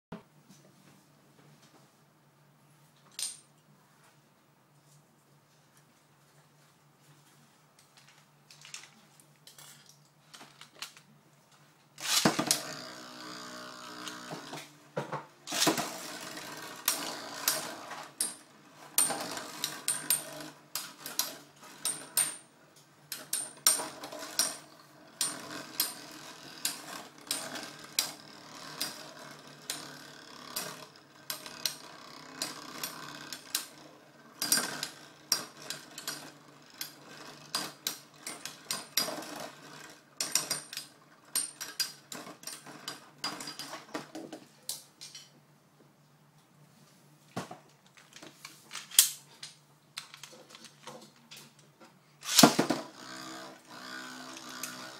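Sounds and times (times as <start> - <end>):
spinning tops whirring and scraping: 11.8 - 44.1, 47.9 - 54.9.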